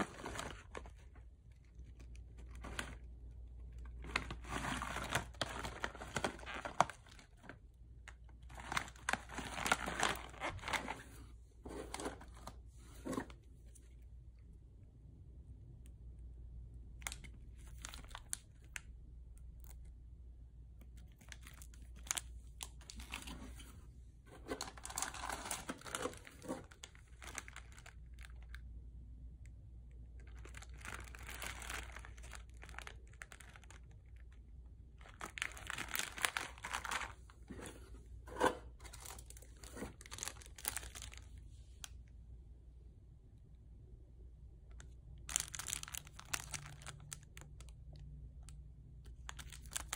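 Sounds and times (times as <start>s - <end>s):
plastic wrappers crinkling: 0.0s - 13.7s, 17.0s - 18.9s, 20.9s - 28.7s, 30.1s - 41.4s, 44.8s - 49.9s.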